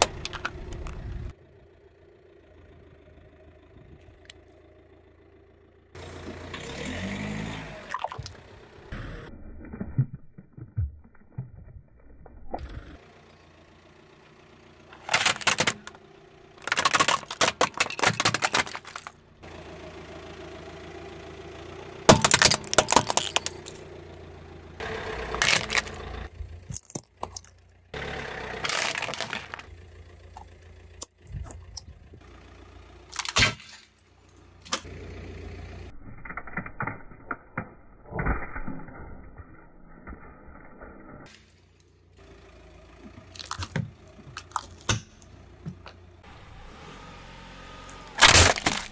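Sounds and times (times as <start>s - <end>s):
tyre crushing objects: 15.0s - 15.9s, 16.6s - 19.2s, 22.1s - 23.8s, 25.3s - 26.0s, 28.6s - 29.7s, 48.0s - 48.9s.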